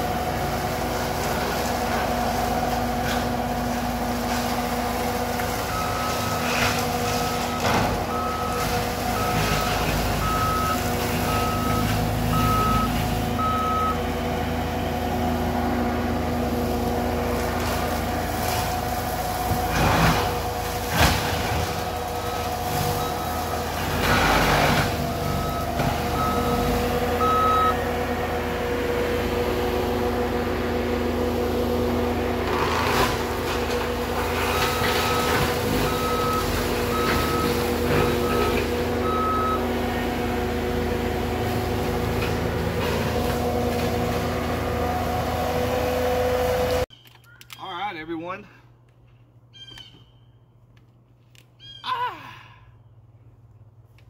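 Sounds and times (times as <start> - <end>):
diesel engine running: 0.0 - 46.9
backup alarm beeping: 5.6 - 6.5, 7.1 - 14.1, 22.1 - 24.0, 25.0 - 27.8, 34.6 - 39.8.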